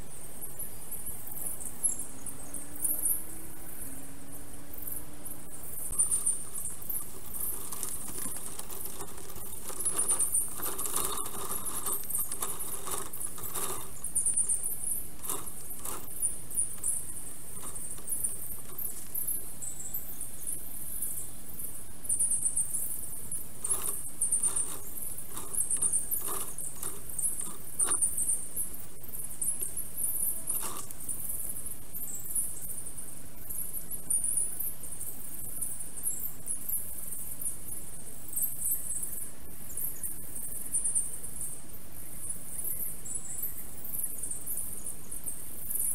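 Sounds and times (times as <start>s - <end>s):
high-pitched bird chirping: 5.9s - 20.2s.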